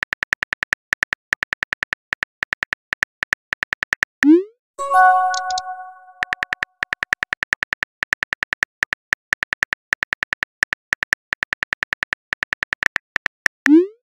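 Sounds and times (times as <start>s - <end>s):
phone keyboard typing clicks: 4.9s - 6.4s.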